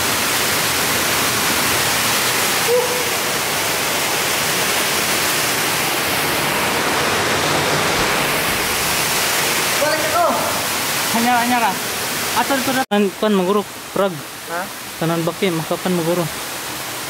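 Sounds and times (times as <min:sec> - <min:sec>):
waterfall rushing into pool: 0:00.0 - 0:17.0
person calling: 0:02.6 - 0:03.4.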